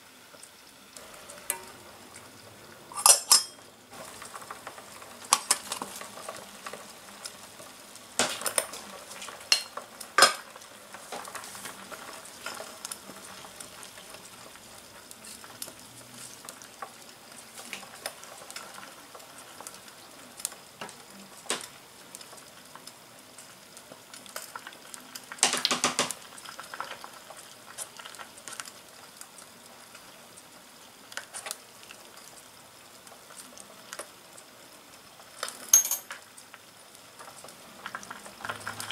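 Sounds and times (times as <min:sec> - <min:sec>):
soup boiling and sizzling: 0:00.0 - 0:38.9
lid and spoon clinking on pot: 0:03.0 - 0:03.6.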